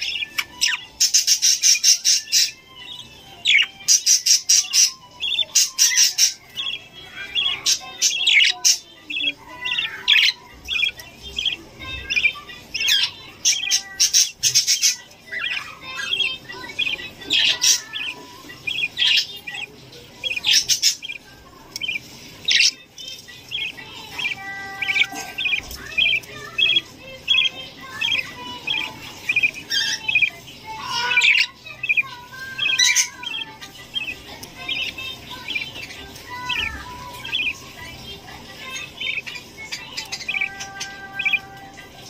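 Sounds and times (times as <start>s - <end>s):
budgerigars chirping: 0.0s - 42.0s
harsh bird squawks: 23.5s - 37.7s.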